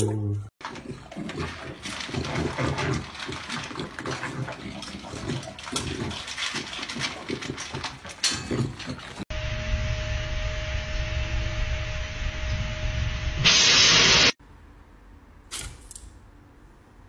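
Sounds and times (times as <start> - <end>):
puppy crunching dry kibble: 0.6 - 9.2.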